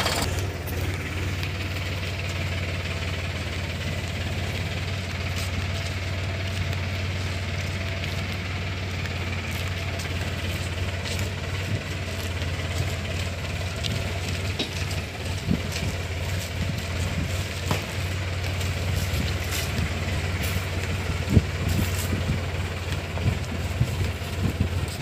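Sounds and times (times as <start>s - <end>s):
tractor diesel engine running: 0.0s - 25.0s
knocks and rattles: 9.7s - 25.0s.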